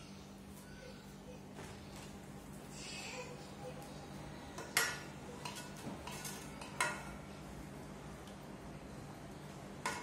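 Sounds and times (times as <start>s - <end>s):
metal spoon clinking on steel pot: 4.6s - 7.2s, 9.8s - 10.0s.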